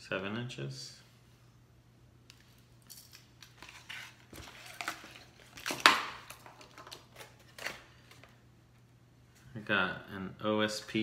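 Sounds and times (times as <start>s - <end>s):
packaging clicking and rustling: 3.1s - 8.4s.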